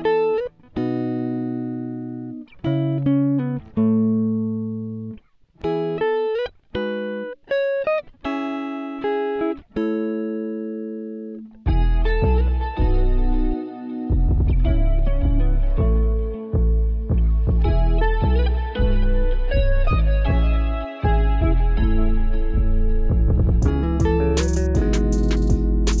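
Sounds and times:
plucked guitar notes and chords: 0:00.0 - 0:26.0
bass: 0:11.7 - 0:26.0.

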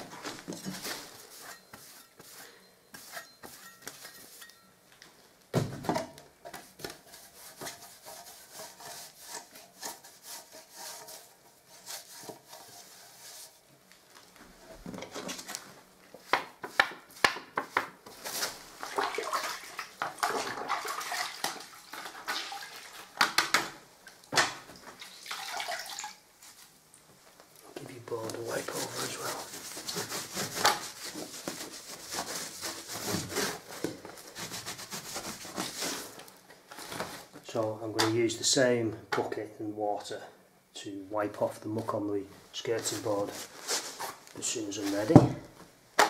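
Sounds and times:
water splashing and dripping: 0:18.8 - 0:23.2, 0:24.7 - 0:26.2.

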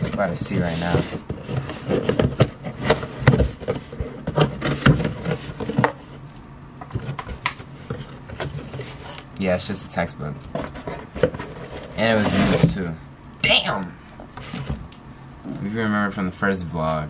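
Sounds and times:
cardboard box being unpacked: 0:00.0 - 0:06.1, 0:06.9 - 0:09.3, 0:10.5 - 0:12.8.

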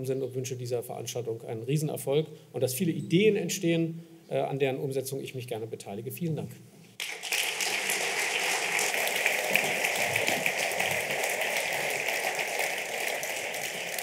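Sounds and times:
audience applauding: 0:07.0 - 0:14.0.

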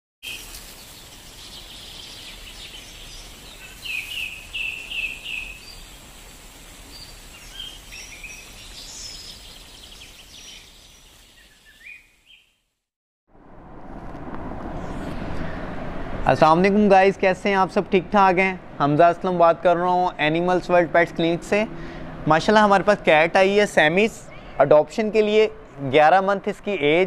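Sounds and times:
background hiss: 0:00.2 - 0:12.4
birds chirping: 0:00.2 - 0:12.6, 0:23.5 - 0:24.6
falling bird chirps: 0:00.2 - 0:12.6.

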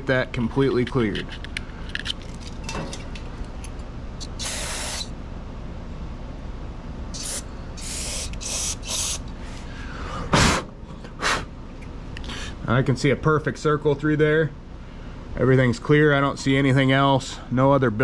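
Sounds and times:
aerosol spray hissing: 0:04.2 - 0:05.1, 0:07.2 - 0:09.2.

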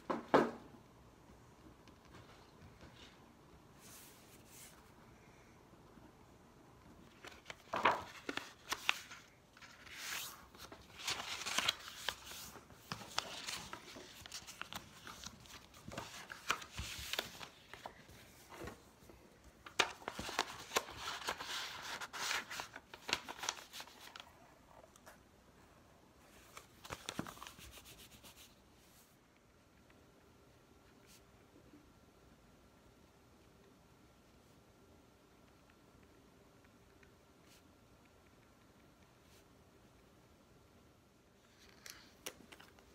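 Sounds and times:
paper rustling and crinkling: 0:07.1 - 0:24.4, 0:26.3 - 0:28.6.

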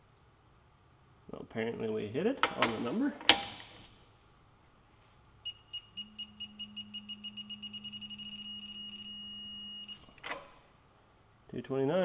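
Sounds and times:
low steady hum: 0:00.0 - 0:12.0
torque wrench beeping: 0:05.4 - 0:10.8.

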